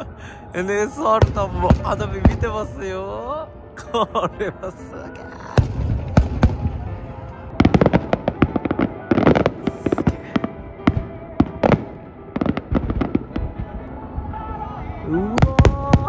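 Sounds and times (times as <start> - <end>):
music playing: 0.0 - 16.0
fireworks bursting and crackling: 0.8 - 3.2, 5.0 - 13.8, 15.2 - 16.0.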